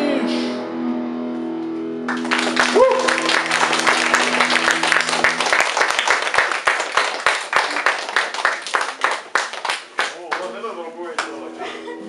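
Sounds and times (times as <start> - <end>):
audience clapping: 2.1 - 11.4.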